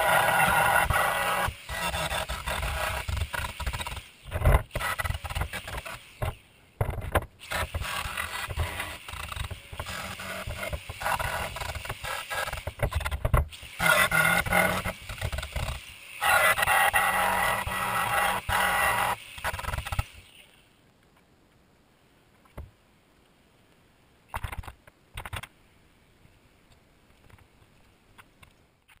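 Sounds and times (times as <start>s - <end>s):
angle grinder on steel: 0.0s - 4.0s, 7.4s - 13.0s, 13.6s - 20.3s.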